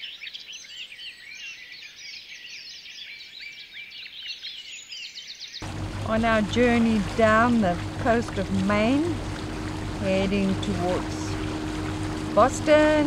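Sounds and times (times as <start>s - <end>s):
many birds chirping: 0.0s - 5.6s.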